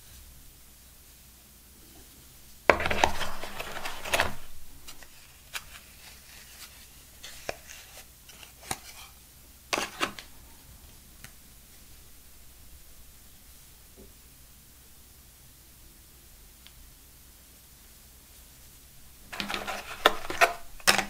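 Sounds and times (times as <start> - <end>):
cardboard box rustling scrape: 2.7 - 5.0, 19.3 - 20.6.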